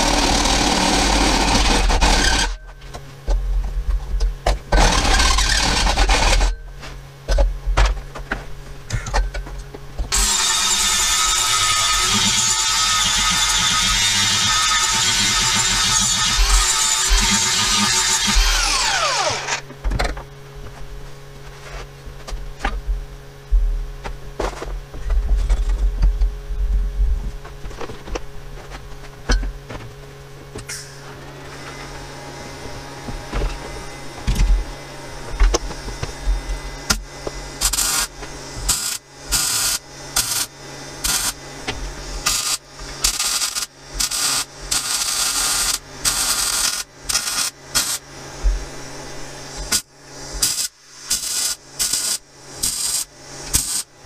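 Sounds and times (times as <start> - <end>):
steady low hum: 0.0 - 54.0
angle grinder winding down: 10.1 - 19.6
welder hissing bursts: 37.6 - 38.1, 38.7 - 41.4, 42.2 - 48.0, 49.7 - 53.9.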